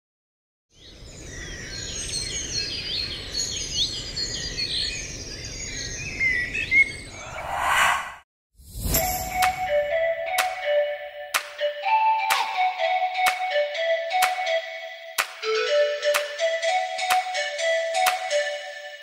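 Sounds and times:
birds chirping and trilling: 0.7s - 8.2s
rushing swell: 7.1s - 9.5s.

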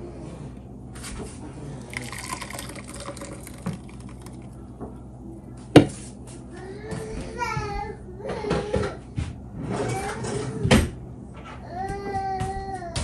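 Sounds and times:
liquid pouring into a bowl: 1.8s - 4.8s.

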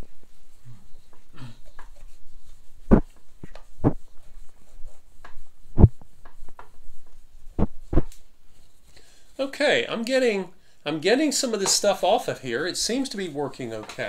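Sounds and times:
dull low thumps: 2.9s - 4.0s, 5.7s - 6.2s, 7.5s - 8.1s.

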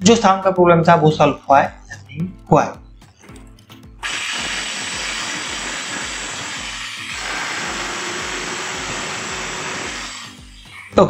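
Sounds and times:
cutter motor whirring: 4.0s - 11.0s.

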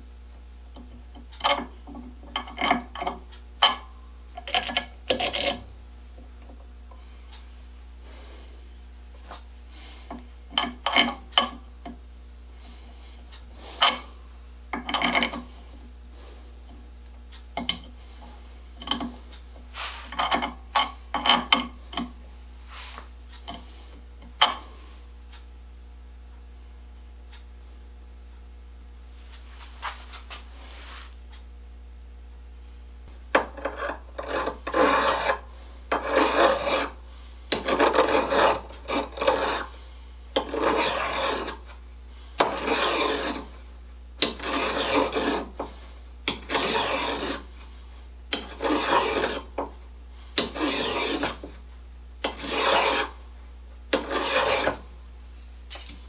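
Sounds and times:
hand file scraping steel: 4.4s - 5.7s, 13.6s - 14.1s, 14.8s - 15.6s, 18.8s - 22.1s, 33.4s - 41.8s, 42.4s - 43.6s, 44.2s - 47.7s, 48.3s - 49.7s, 50.3s - 51.6s, 52.2s - 53.2s, 53.9s - 54.9s.

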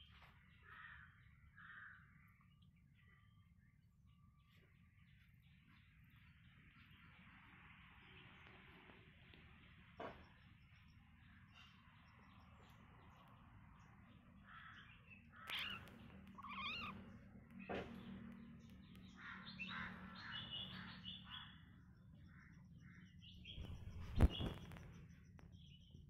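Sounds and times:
kittens mewing and squeaking: 15.3s - 18.4s.

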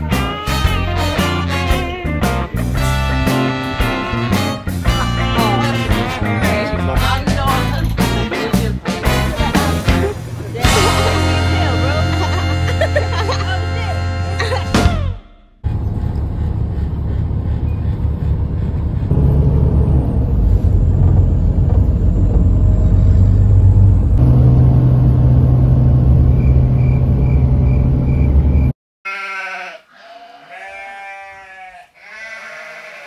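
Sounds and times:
vehicle interior rumble: 15.6s - 28.7s.

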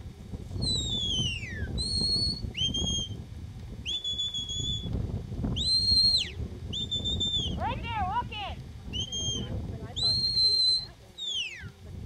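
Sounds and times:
shepherd's whistle: 0.6s - 3.2s, 3.8s - 4.9s, 5.6s - 7.6s, 8.9s - 11.7s.

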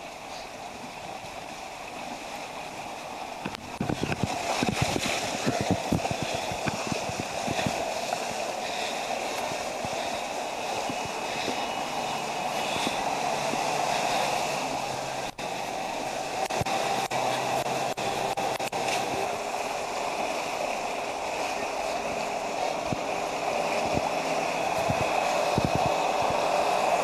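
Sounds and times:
floodwater rushing: 0.0s - 27.0s
vehicles driving through water: 0.0s - 27.0s.

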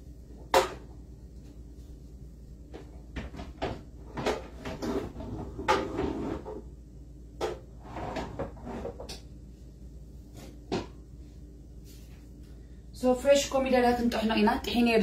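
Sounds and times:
rustling and scraping: 2.7s - 6.8s, 7.6s - 9.2s, 10.1s - 12.4s.

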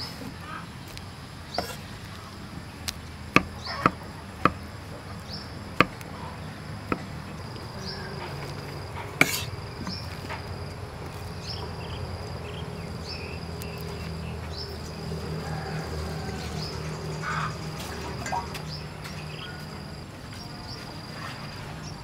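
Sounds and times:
insects calling: 0.0s - 22.0s
water poured into metal pot: 17.8s - 18.8s.

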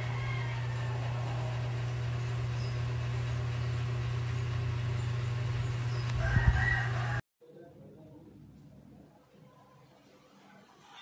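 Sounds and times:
ceiling fan humming: 0.0s - 7.2s.

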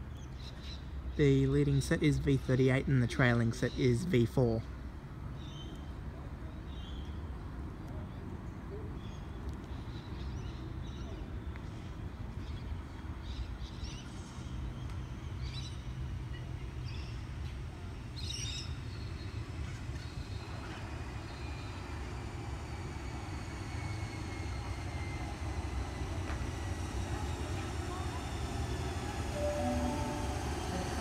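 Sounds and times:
train rumbling: 11.4s - 31.0s
faint falling whine: 23.8s - 31.0s.

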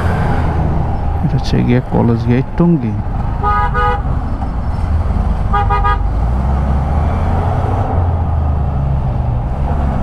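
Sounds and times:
road and wind noise: 0.0s - 10.0s
vehicle horn toots: 3.4s - 4.0s, 5.5s - 6.1s.

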